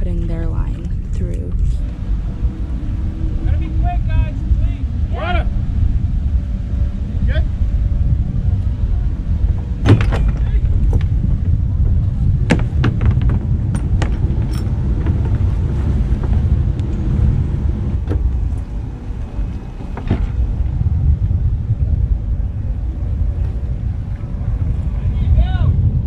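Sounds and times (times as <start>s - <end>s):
steady low rumble: 0.0s - 26.0s
gear knocking and clicking: 12.5s - 17.1s.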